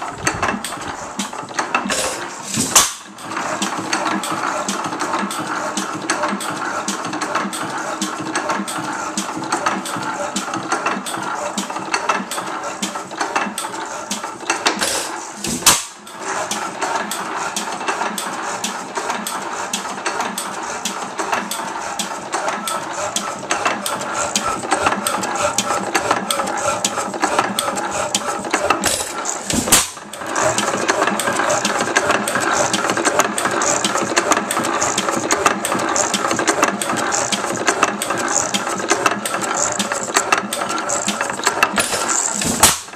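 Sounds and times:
single-cylinder engine clattering: 0.0s - 42.9s.

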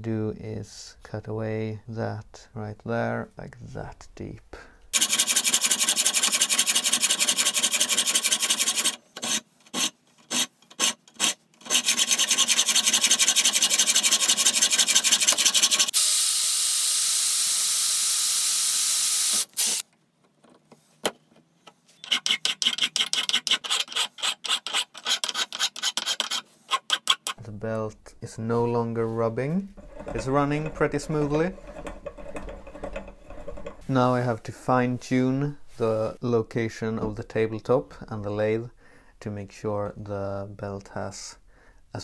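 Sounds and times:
file rasping on metal: 5.0s - 15.9s, 22.0s - 27.4s, 29.8s - 33.8s
hacksaw cutting metal: 5.0s - 16.0s, 22.0s - 27.4s.

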